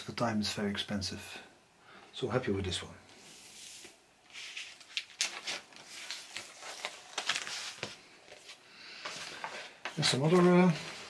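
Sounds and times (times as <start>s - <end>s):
paper sleeve rustling: 3.2s - 11.0s.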